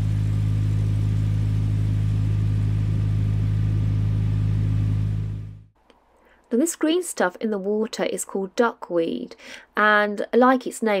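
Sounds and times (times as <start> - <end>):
boat engine low hum: 0.0 - 5.8.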